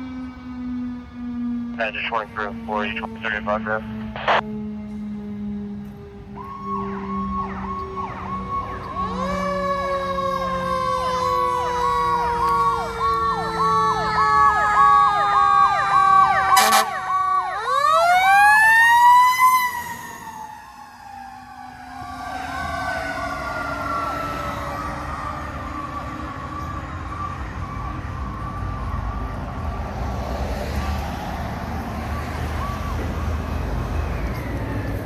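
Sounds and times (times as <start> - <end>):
siren yelping: 0.0 - 31.1, 31.7 - 35.0
slower falling siren tone: 3.9 - 35.0
short sharp siren burst: 16.4 - 24.4.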